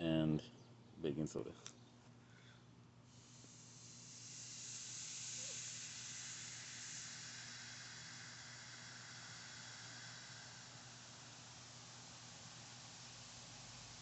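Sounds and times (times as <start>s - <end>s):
fizzing foam hiss: 3.1s - 14.0s.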